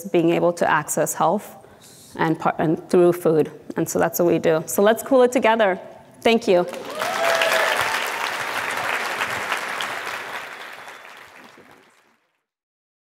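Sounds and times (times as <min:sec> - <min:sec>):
audience applauding: 0:06.6 - 0:12.4.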